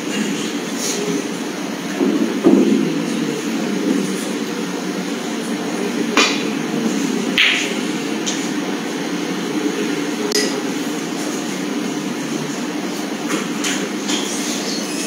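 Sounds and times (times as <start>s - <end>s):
cue striking ball click: 6.1s - 6.6s, 7.3s - 8.4s.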